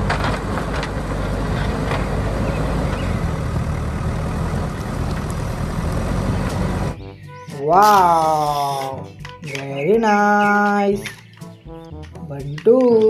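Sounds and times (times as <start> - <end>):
diesel engine droning: 0.0 - 9.2.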